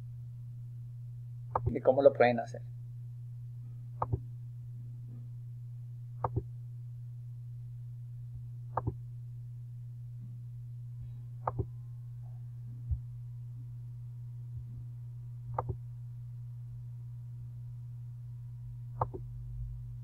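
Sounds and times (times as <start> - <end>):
low electrical hum: 0.0 - 20.0
computer mouse clicks: 4.0 - 4.2, 15.6 - 15.8, 19.0 - 19.2.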